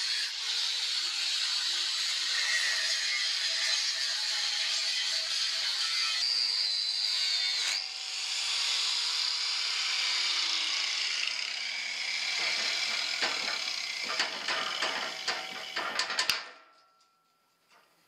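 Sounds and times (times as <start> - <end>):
angle grinder grinding steel: 0.0 - 16.5
metal clanks: 12.3 - 18.0.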